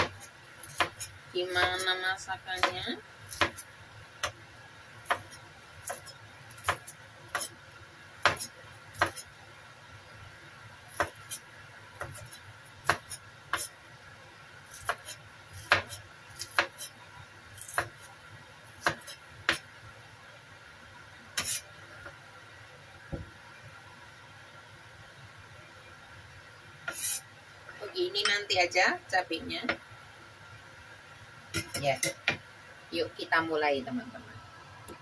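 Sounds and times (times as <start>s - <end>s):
cleaver chopping on cutting board: 8.2s - 9.2s.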